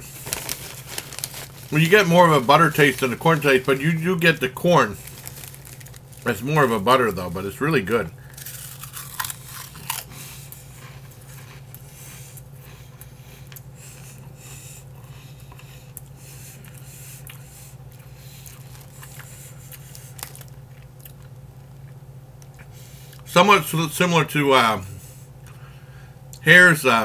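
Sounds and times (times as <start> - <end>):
chips crunching and chewing: 0.0 - 7.2, 8.2 - 13.7, 14.9 - 23.3
chip bag rustling: 0.0 - 10.2, 18.3 - 20.6
steady low hum: 0.0 - 27.0.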